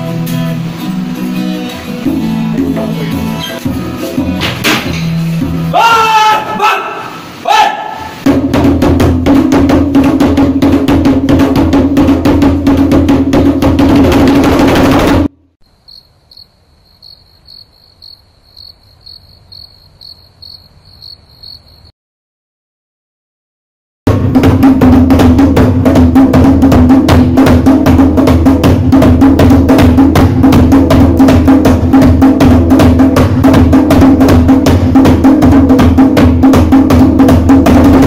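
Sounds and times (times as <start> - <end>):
hand drum: 0.0 - 5.6, 8.2 - 15.4, 24.1 - 38.0
strummed acoustic guitar: 0.0 - 5.7
person calling out: 5.7 - 8.1
cricket chirping: 15.6 - 21.9.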